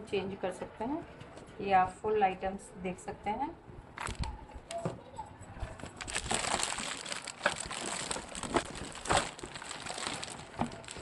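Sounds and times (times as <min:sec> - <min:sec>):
plastic wrapping crinkling: 0:04.0 - 0:04.3, 0:05.8 - 0:11.0.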